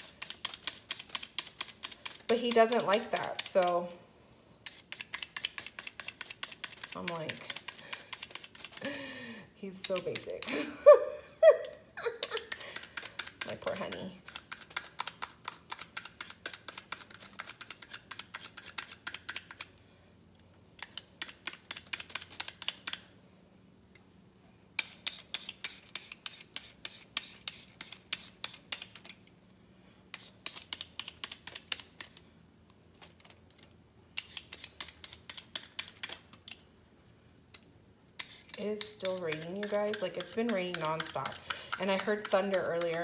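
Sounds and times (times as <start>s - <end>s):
peeler scraping potato skin: 0.0s - 4.0s, 4.6s - 9.0s, 9.7s - 10.4s, 12.1s - 19.7s, 20.8s - 23.1s, 24.8s - 29.2s, 30.1s - 32.2s, 33.0s - 36.6s, 38.1s - 43.0s.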